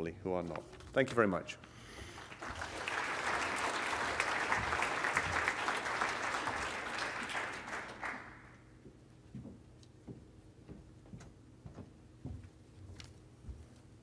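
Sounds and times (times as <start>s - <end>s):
audience applauding: 2.1s - 8.7s.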